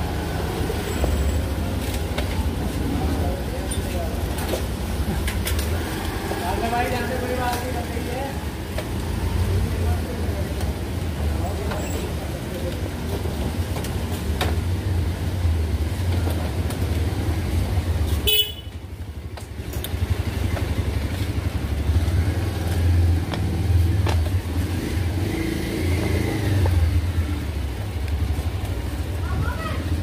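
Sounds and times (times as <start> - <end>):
road traffic passing: 0.0 - 30.0
vehicle horns honking: 18.2 - 18.7.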